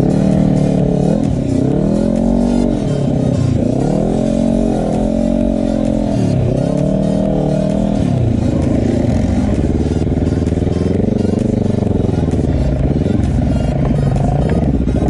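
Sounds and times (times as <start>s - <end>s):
quad bike engine revving: 0.0s - 15.0s.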